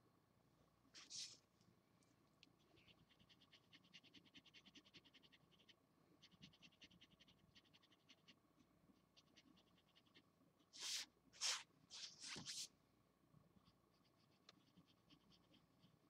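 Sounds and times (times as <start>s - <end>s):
marker scratching on paper: 1.0s - 1.4s, 10.8s - 12.7s.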